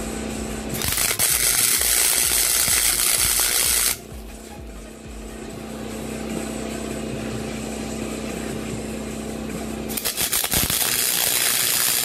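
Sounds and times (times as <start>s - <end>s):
steady hum: 0.0s - 12.0s
welding arc crackling: 0.8s - 4.0s, 9.9s - 12.0s.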